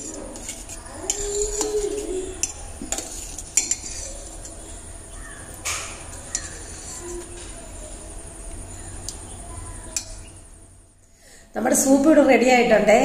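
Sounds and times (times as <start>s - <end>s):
spoon clinking against metal pot: 0.0s - 4.8s, 5.6s - 7.3s, 9.9s - 10.2s
spoon stirring thick soup: 0.0s - 10.6s.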